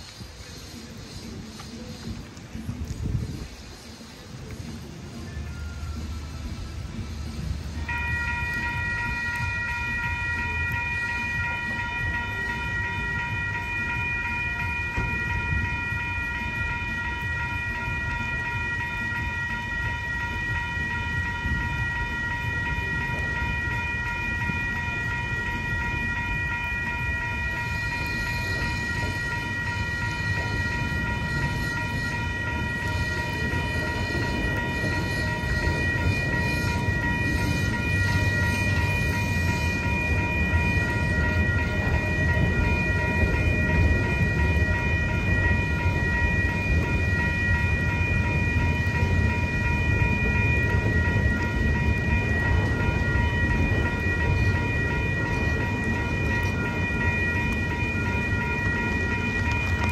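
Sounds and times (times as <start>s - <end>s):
crossing warning bell ringing: 0.0s - 59.9s
freight train rolling: 0.0s - 59.9s.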